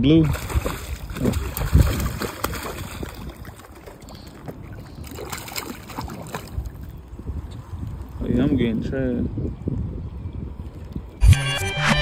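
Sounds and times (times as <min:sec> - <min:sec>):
water sloshing: 0:00.0 - 0:08.2
fish thrashing and splashing: 0:00.2 - 0:07.0.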